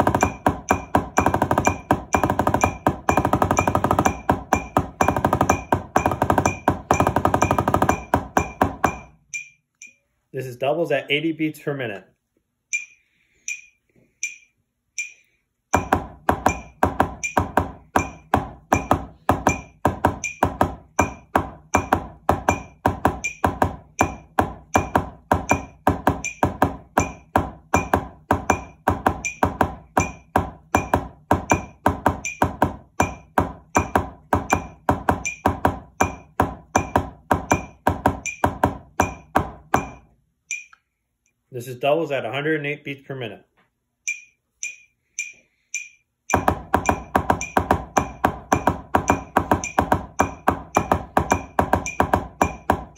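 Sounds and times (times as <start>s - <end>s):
drumsticks tapping practice pad: 0.0s - 10.0s, 12.7s - 40.9s, 44.0s - 52.9s
metronome clicking: 12.7s - 15.3s, 40.5s - 40.9s, 44.0s - 46.4s.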